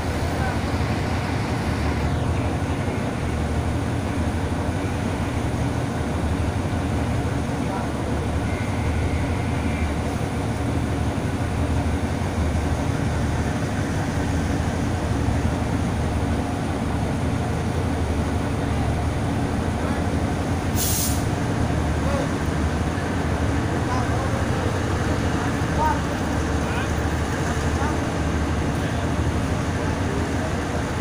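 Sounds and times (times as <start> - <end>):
diesel locomotive engine rumbling: 0.0 - 31.0
short hiss: 20.7 - 21.3.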